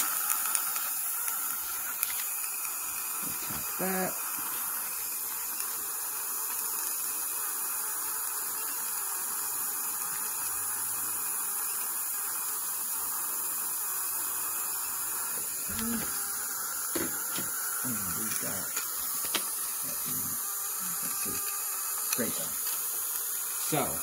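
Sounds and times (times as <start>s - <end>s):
dental suction hiss: 0.0s - 24.0s.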